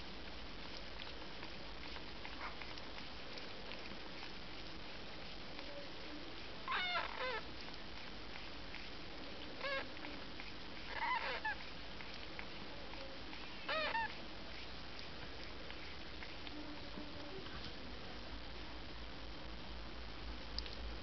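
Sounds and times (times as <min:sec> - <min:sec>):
kittens mewing: 0:06.7 - 0:07.5, 0:09.6 - 0:10.2, 0:10.9 - 0:11.6, 0:13.6 - 0:14.2.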